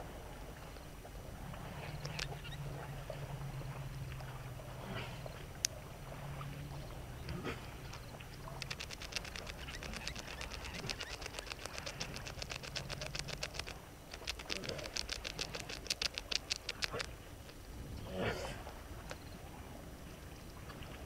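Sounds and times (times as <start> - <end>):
low steady hum: 0.0 - 21.0
animal rattling trill: 1.8 - 2.7, 6.7 - 17.6.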